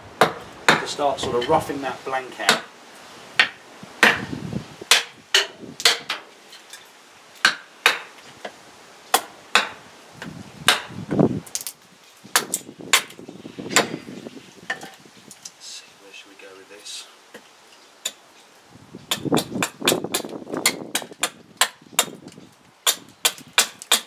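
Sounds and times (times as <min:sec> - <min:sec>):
hatchet chopping wood: 0:00.2 - 0:01.0, 0:02.4 - 0:02.7, 0:03.4 - 0:06.2, 0:07.4 - 0:11.7, 0:12.3 - 0:14.1, 0:19.1 - 0:24.0.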